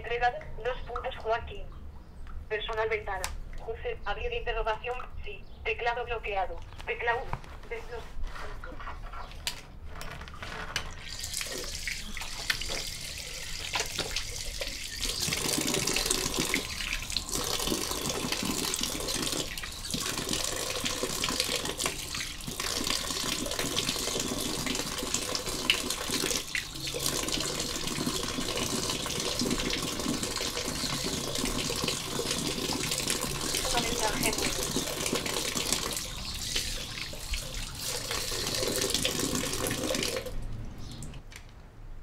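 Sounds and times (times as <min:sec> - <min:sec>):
running water rushing: 0:11.0 - 0:40.4.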